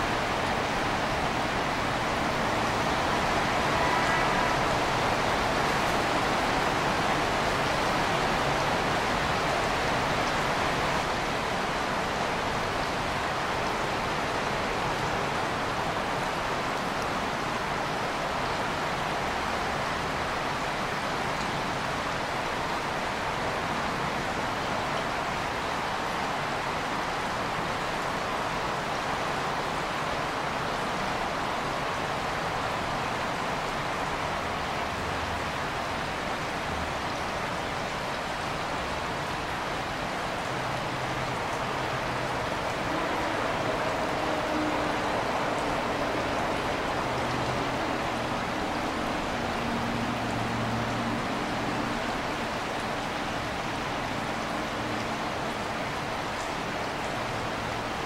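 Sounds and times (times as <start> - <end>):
creek water rushing: 0.0 - 58.0.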